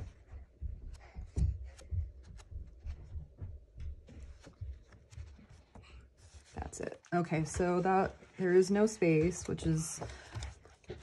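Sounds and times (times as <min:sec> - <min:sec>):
album pages turning: 0:04.2 - 0:11.0.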